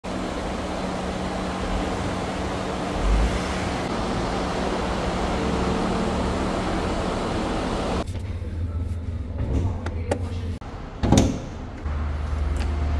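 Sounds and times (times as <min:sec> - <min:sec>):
pickup truck engine humming: 0:00.0 - 0:08.0
road traffic noise: 0:00.0 - 0:08.1, 0:10.5 - 0:12.9.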